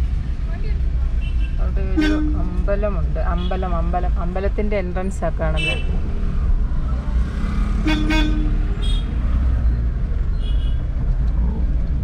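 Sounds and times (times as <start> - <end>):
car rumbling on the move: 0.0 - 12.0
vehicle horns tooting: 1.2 - 2.6, 7.8 - 9.2.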